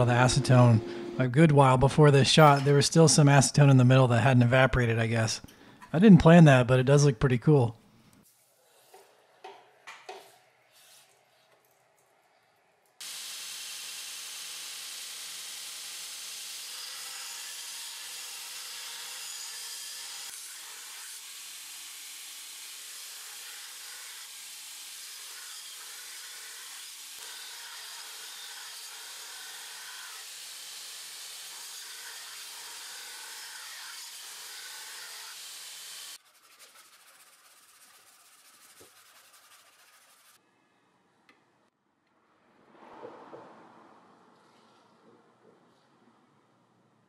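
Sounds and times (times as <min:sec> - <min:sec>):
belt grinder grinding steel blade: 0:22.8 - 0:36.2
hand sanding scratching on blade: 0:36.1 - 0:40.4.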